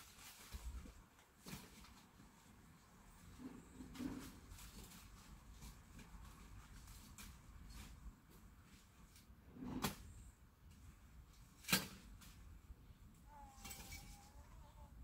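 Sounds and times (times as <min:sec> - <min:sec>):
faint steady high tone: 0:13.2 - 0:15.0.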